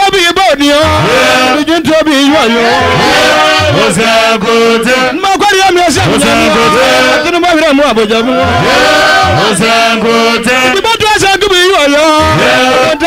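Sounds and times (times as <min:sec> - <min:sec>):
person singing gospel: 0:00.8 - 0:11.0, 0:11.6 - 0:13.0
instrumental backing music: 0:06.0 - 0:10.8.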